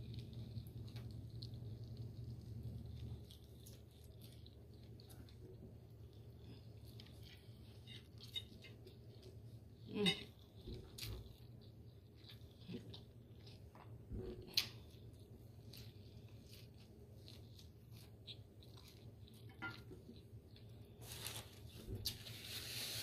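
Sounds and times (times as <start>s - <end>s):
rustling: 20.8s - 23.0s.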